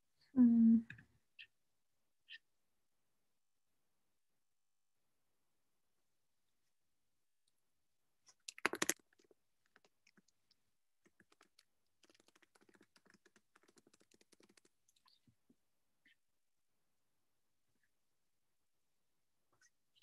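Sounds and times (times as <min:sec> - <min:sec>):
typing on computer keyboard: 0:11.0 - 0:14.8.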